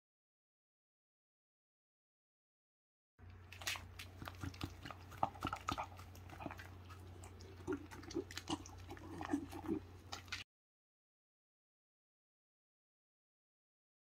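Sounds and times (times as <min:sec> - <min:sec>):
dog chewing wetly: 0:03.2 - 0:10.4
low steady hum: 0:03.2 - 0:10.4
dog licking lips: 0:03.5 - 0:10.4.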